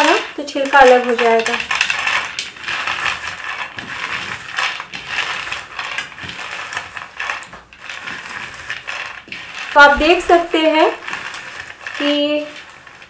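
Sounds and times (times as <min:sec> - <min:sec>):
peanuts rattled between hands: 0:00.0 - 0:13.0.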